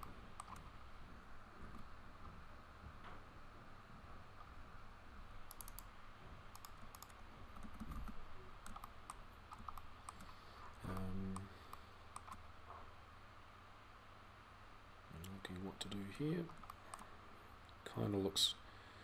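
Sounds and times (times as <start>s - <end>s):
keyboard and mouse clicking: 0.0s - 0.7s, 5.5s - 5.9s, 6.5s - 12.4s, 16.5s - 17.1s
faint background hum: 0.0s - 19.0s.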